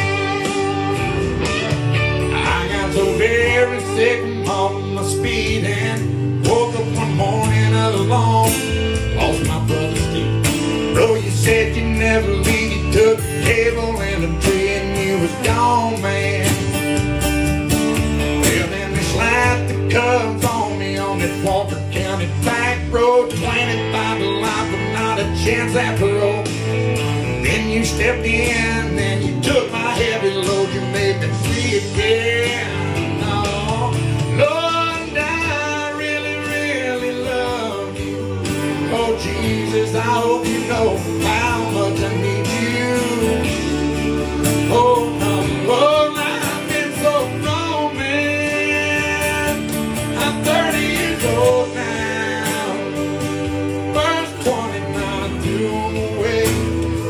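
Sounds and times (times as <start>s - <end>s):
acoustic guitar strummed and picked: 0.0s - 57.0s
man singing: 2.2s - 17.2s, 18.2s - 57.0s.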